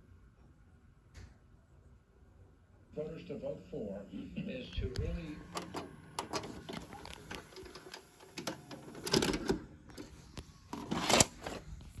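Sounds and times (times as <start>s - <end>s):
tape mechanism clicking and whirring: 4.9s - 12.0s
cassette clattering: 5.5s - 10.1s.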